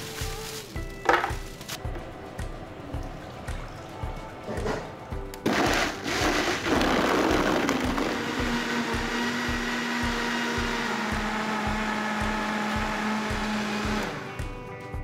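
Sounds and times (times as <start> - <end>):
blender running: 5.5 - 14.4.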